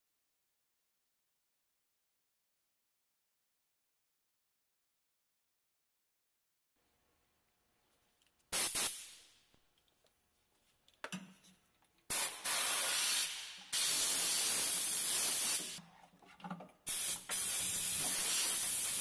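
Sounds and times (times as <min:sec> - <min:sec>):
compressed air blow gun hissing: 0:12.1 - 0:15.8, 0:16.9 - 0:19.0.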